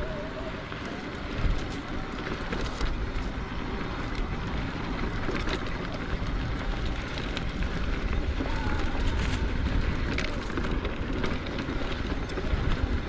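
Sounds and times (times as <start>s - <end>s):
bike clicks and rattles: 0.0s - 13.0s
bike tyres rumbling on dirt: 0.0s - 13.0s
wind on microphone: 7.4s - 10.9s.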